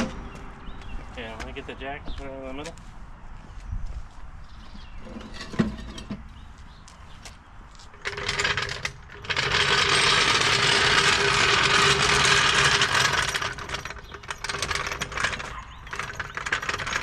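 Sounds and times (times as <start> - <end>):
floor jack wheels grinding rattle: 5.0 - 6.3, 7.9 - 17.0.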